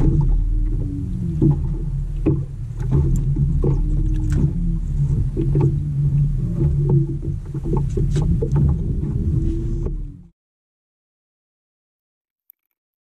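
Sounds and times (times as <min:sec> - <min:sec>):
knocks and slaps on hull: 0:00.0 - 0:10.1
boat motor humming: 0:00.0 - 0:10.3.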